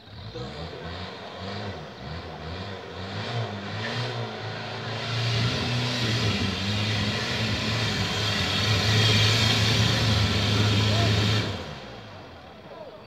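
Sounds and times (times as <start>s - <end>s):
off-road vehicle engine revving: 0.0s - 13.0s.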